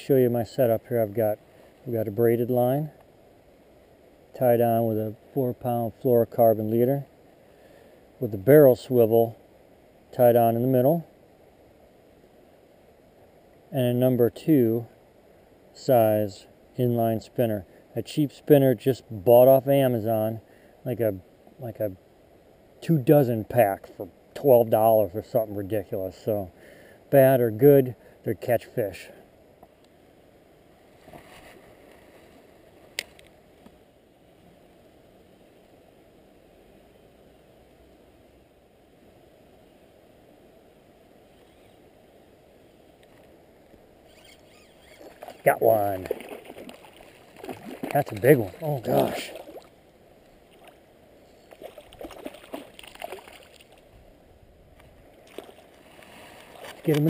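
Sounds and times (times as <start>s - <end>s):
faint steady hiss: 0.0s - 57.0s
fish splashing in water: 46.0s - 49.8s, 51.5s - 53.9s.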